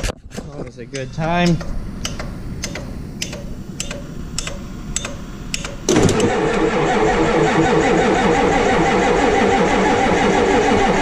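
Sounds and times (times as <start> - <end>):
starter relay clicking: 0.9 - 6.7
engine cranking: 1.4 - 11.0.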